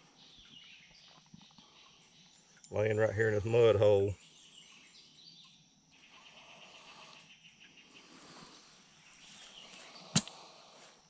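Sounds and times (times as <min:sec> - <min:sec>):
birds: 0:00.0 - 0:11.0
faint insects: 0:00.0 - 0:11.0
machete chopping into ground: 0:10.0 - 0:10.5.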